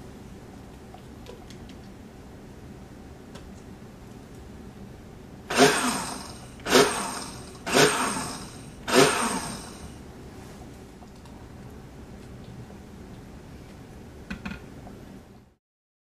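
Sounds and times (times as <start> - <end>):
blender pulsing: 5.5 - 9.9.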